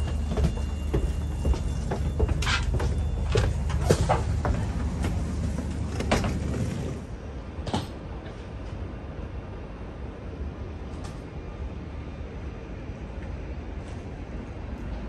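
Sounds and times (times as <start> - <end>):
footsteps on stairs: 0.0 - 6.5
railway platform background: 0.0 - 15.0
train low rumble: 0.0 - 15.0.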